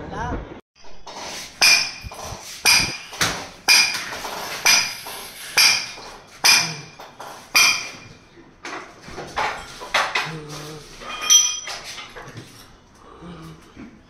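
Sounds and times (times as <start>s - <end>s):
hammer striking metal: 1.0s - 8.3s.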